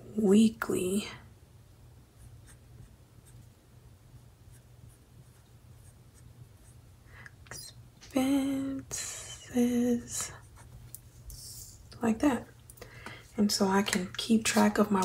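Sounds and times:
low steady hum: 0:00.0 - 0:15.0.

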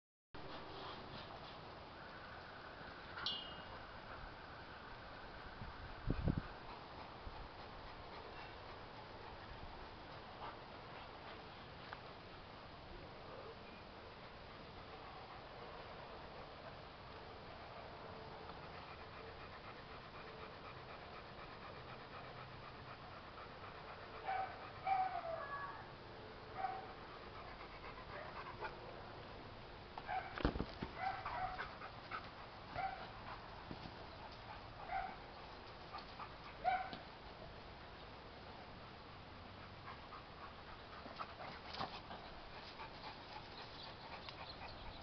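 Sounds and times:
dog panting: 0:06.0 - 0:11.4, 0:17.6 - 0:25.4, 0:26.6 - 0:28.9, 0:30.9 - 0:37.0, 0:39.4 - 0:45.0.

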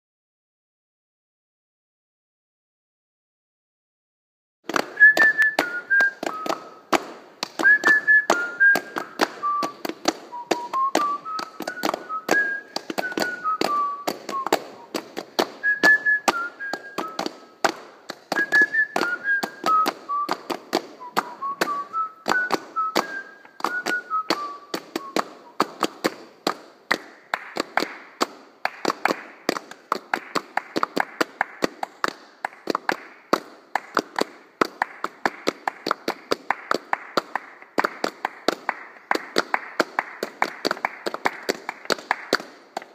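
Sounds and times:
hand claps: 0:04.6 - 0:42.9
person whistling a tune: 0:05.0 - 0:06.8, 0:07.6 - 0:15.0, 0:15.6 - 0:17.6, 0:18.3 - 0:25.6.

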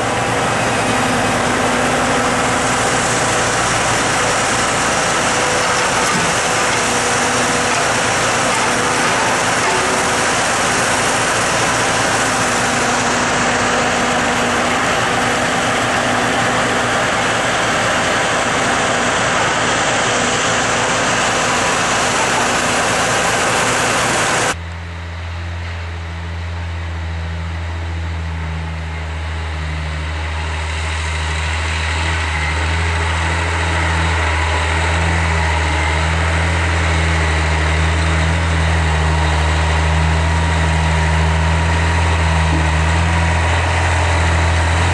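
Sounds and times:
engine idling hum: 0:00.0 - 0:44.9
truck engine running: 0:00.0 - 0:44.9.

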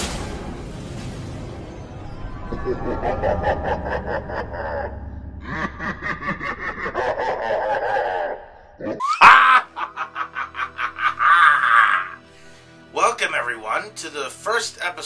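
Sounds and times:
person laughing: 0:02.5 - 0:12.2.

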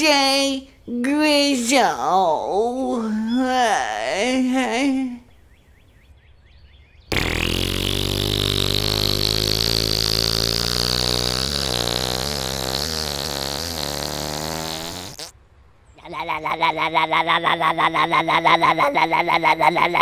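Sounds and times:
pulsing engine sound: 0:07.1 - 0:12.5
monster truck engine revving: 0:07.1 - 0:15.3.

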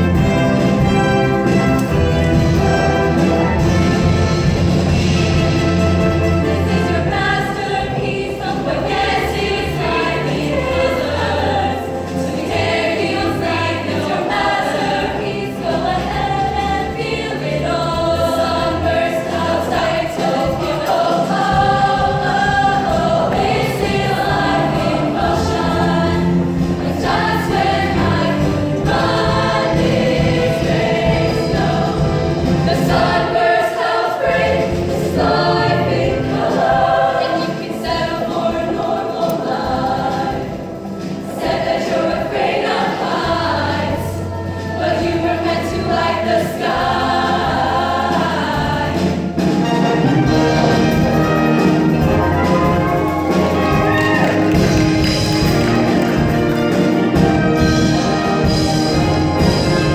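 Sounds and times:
instrumental backing with bass: 0:00.0 - 0:59.9
female choir singing in harmony: 0:05.9 - 0:49.6, 0:57.0 - 0:59.9.

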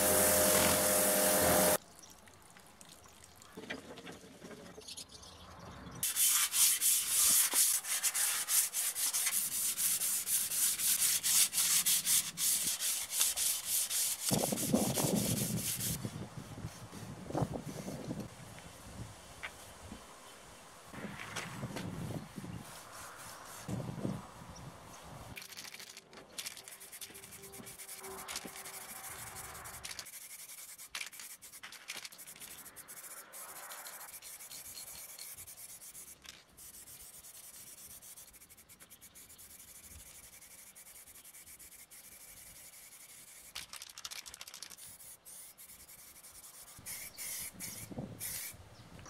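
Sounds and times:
sanding paint on metal tank: 0:00.0 - 0:01.8, 0:06.0 - 0:18.0, 0:21.9 - 0:24.2, 0:26.4 - 0:43.7, 0:44.6 - 0:48.6.

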